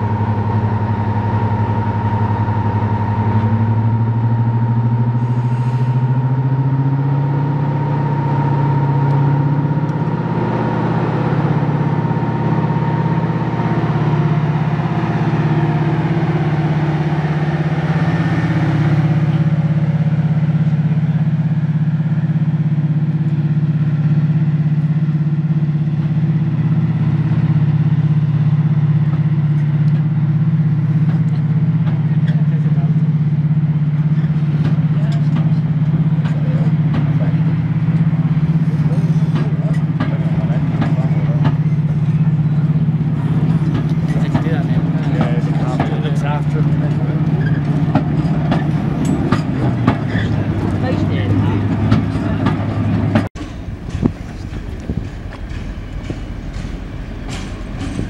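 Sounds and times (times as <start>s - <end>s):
diesel locomotive engine drone: 0.0s - 58.0s
high engine whine: 0.0s - 58.0s.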